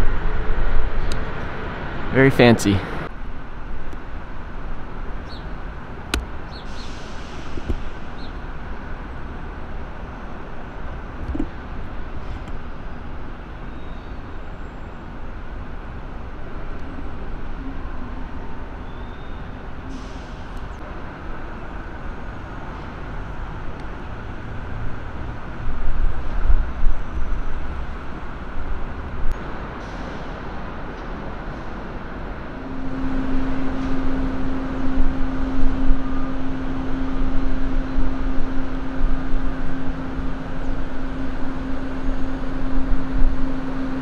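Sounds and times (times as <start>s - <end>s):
road traffic noise: 0.0s - 44.0s
steady low hum: 32.3s - 44.0s.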